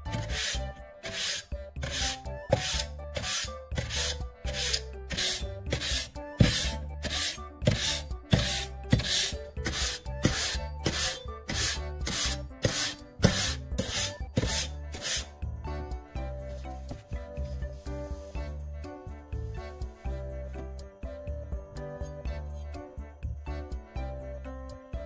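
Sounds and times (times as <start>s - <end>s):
knife scraping on sandpaper: 0.0s - 15.3s
background music: 0.0s - 25.0s.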